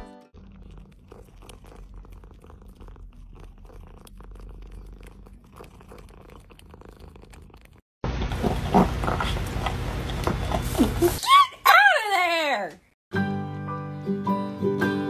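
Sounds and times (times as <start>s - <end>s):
cat purring: 0.4s - 7.8s.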